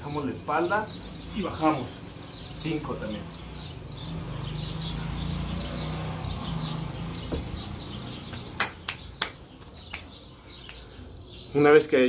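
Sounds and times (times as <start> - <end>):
small birds chirping: 0.0 - 12.0
sharp hand claps: 8.1 - 10.9.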